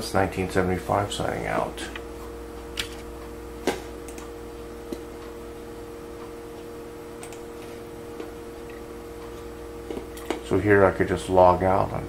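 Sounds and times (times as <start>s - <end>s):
low electrical hum: 0.0s - 12.0s
computer mouse clicks: 4.1s - 4.3s, 7.2s - 7.5s.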